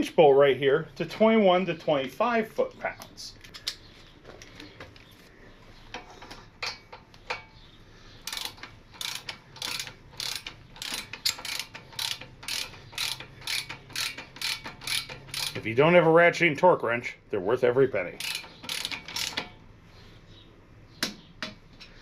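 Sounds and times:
torque wrench ratcheting: 8.2 - 15.7, 18.0 - 19.6.

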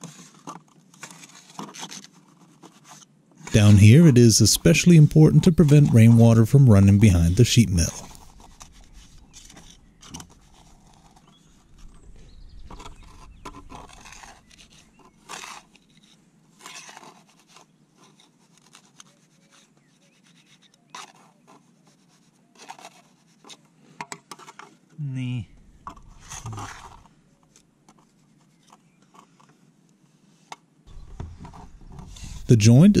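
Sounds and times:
trowel scraping wet grout: 12.7 - 23.7, 25.9 - 27.1.

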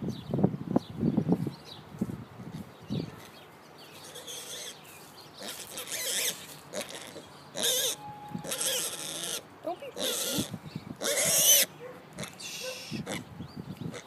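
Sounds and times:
piglet squealing: 4.0 - 4.8, 5.4 - 9.4, 10.0 - 13.2.

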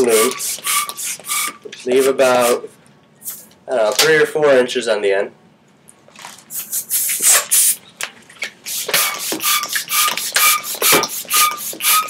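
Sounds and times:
balloons rubbing and squeaking: 0.0 - 2.6, 6.5 - 7.8, 8.4 - 12.0.

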